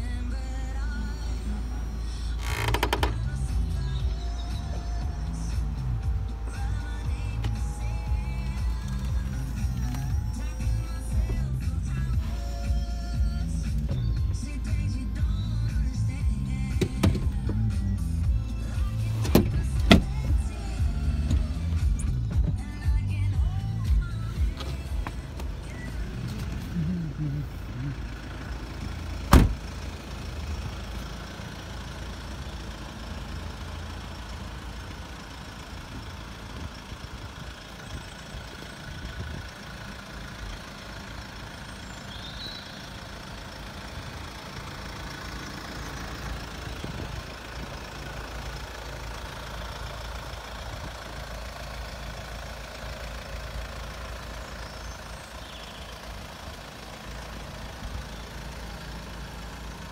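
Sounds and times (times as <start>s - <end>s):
car engine idling: 0.0s - 59.9s
loud thump: 29.3s - 29.6s.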